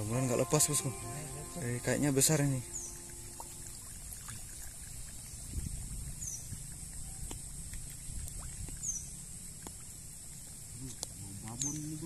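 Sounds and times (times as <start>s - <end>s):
high falling chirp: 0.0s - 3.8s
steady high hiss: 0.0s - 4.4s
water sloshing: 2.2s - 11.1s.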